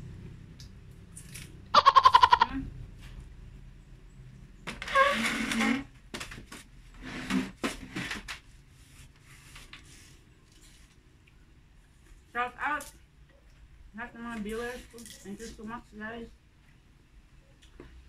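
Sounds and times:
quavering animal call: 0:01.7 - 0:02.7.

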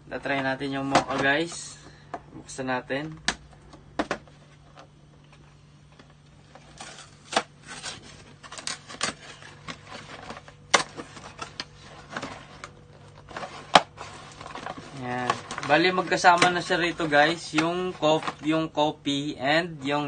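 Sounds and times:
cardboard flaps scraping: 0:06.7 - 0:18.4
cardboard snapping: 0:06.8 - 0:16.8.

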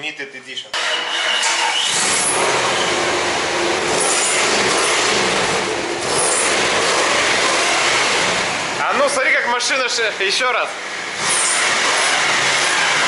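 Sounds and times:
engine revving through exhaust: 0:00.8 - 0:08.9, 0:10.8 - 0:13.0.

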